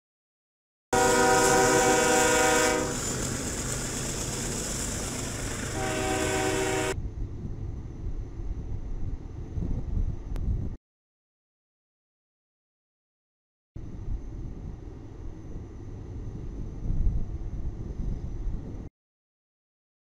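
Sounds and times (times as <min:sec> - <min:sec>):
locomotive air horn: 0:01.0 - 0:03.2, 0:05.1 - 0:07.0
distant train rumble: 0:01.0 - 0:09.6
freight cars rumbling and rattling: 0:02.7 - 0:07.0.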